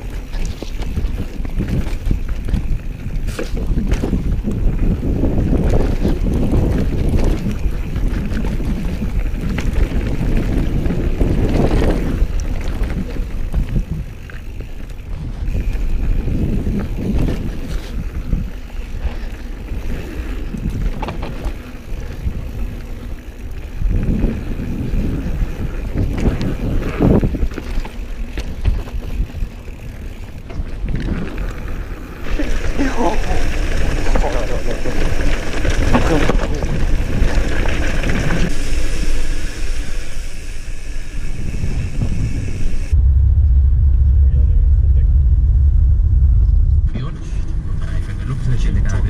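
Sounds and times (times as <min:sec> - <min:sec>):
bike rattling and knocking: 0:00.0 - 0:38.6
wind buffeting microphone: 0:00.0 - 0:49.0.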